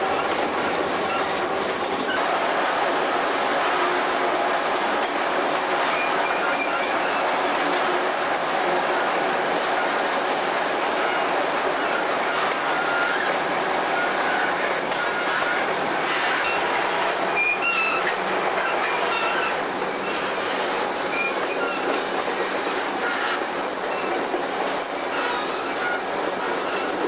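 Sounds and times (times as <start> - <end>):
train wheels rumbling on rails: 0.0 - 27.0
high-pitched wheel squeals: 5.9 - 7.3, 11.8 - 13.3, 17.3 - 22.0.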